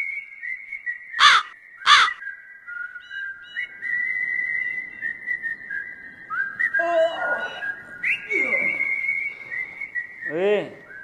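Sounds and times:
person whistling a tune: 2.2 - 11.0.

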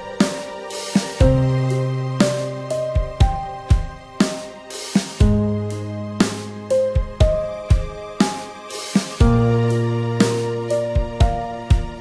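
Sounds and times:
drum beat: 0.0 - 1.6, 3.0 - 5.6, 6.2 - 9.6.

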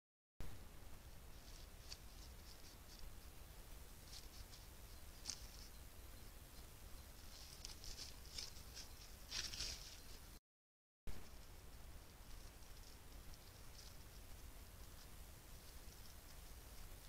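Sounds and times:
steady low hum: 0.4 - 10.4, 11.1 - 17.0
small animal nibbling: 1.3 - 5.8, 7.2 - 10.0, 11.2 - 17.0
rustling in leaf litter: 7.2 - 10.3.

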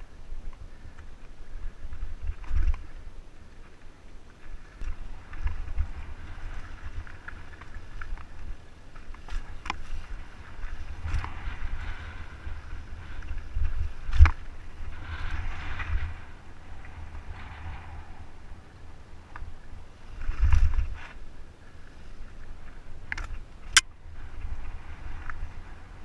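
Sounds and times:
wind buffeting microphone: 0.0 - 26.0
bike rolling over dirt and rock: 0.5 - 18.0, 19.3 - 26.0.

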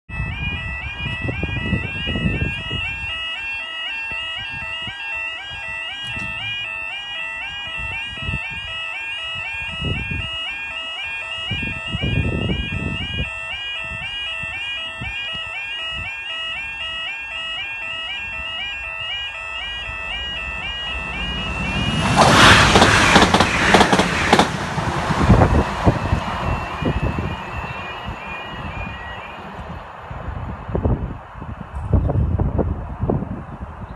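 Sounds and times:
two-tone warbling alarm: 0.1 - 24.4, 25.1 - 29.8
low rumbles: 19.6 - 33.0.

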